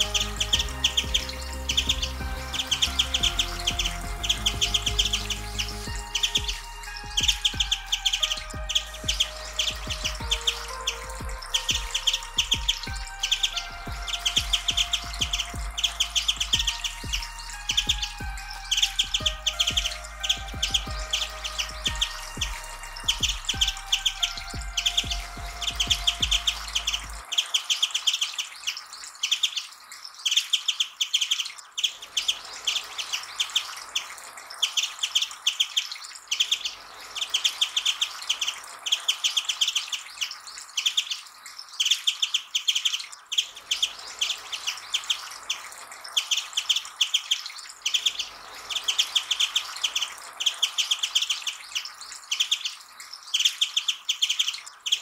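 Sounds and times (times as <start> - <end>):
bird twittering: 0.0 - 55.0.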